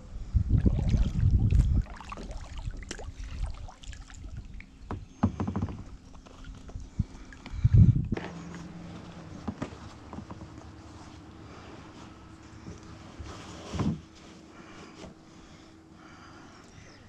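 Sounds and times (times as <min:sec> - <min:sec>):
paddle splashes: 0:00.6 - 0:04.7
paddle knocking against kayak hull: 0:04.9 - 0:06.0.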